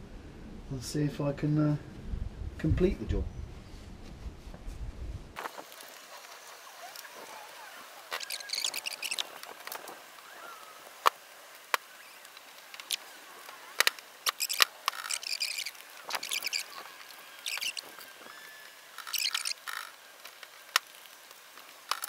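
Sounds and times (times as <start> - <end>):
rubber seal squeaking: 6.8 - 9.4, 13.8 - 20.0.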